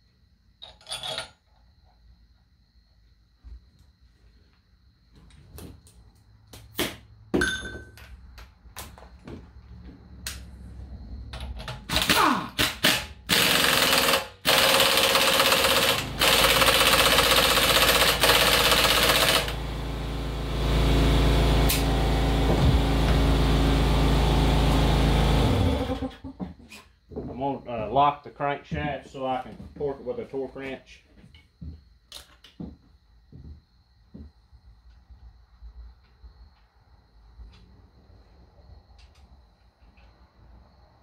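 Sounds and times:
impact wrench rattling: 0:11.5 - 0:19.5.

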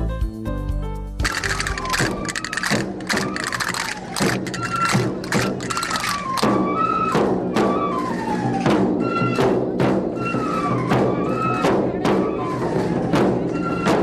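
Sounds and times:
castanets clacking: 0:01.2 - 0:06.5
drum beats: 0:01.2 - 0:06.8
flute melody: 0:01.4 - 0:14.0.

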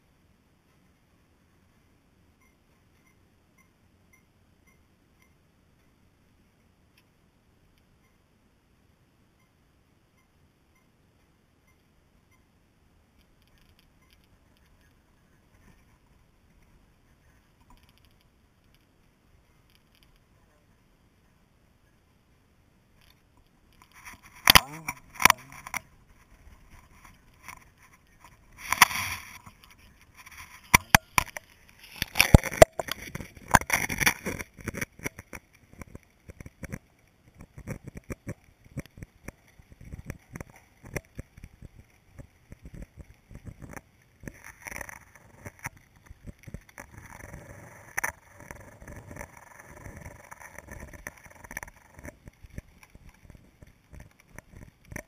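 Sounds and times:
underwater knocks and clicks: 0:30.6 - 0:55.0.

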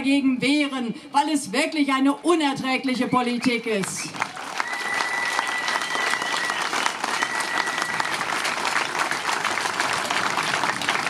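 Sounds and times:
crowd applauding: 0:04.1 - 0:11.0.

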